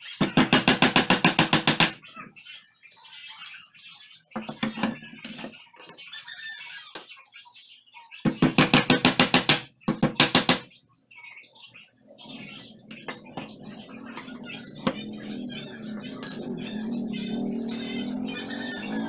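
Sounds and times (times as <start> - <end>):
hammer tapping on wooden door: 0.2 - 2.0, 8.3 - 10.7.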